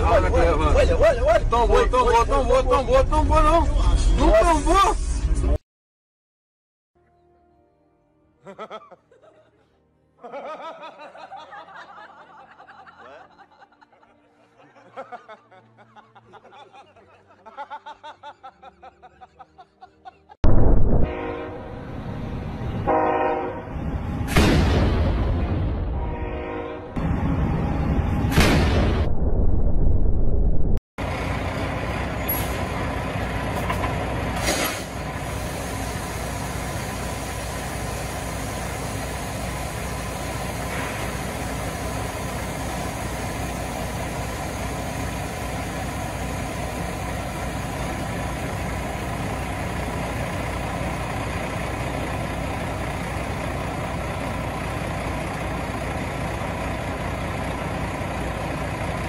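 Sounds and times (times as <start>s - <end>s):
loud abrupt sound: 20.4s - 22.6s
truck diesel engine idling: 31.0s - 59.0s
air hiss: 34.4s - 46.5s.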